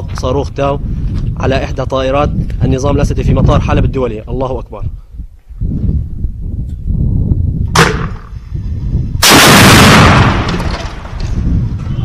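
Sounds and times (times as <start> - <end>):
sharp crack: 7.8 - 8.3, 9.2 - 11.3
missile launch blast: 9.2 - 11.2.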